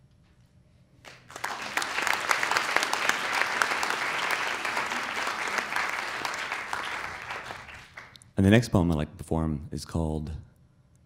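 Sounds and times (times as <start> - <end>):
audience applause: 1.1 - 8.2.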